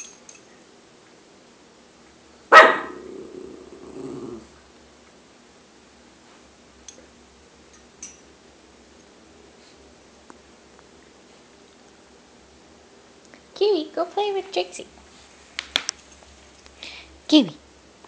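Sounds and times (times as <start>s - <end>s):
dog barking: 2.5s - 3.1s
dog growling: 2.7s - 4.6s.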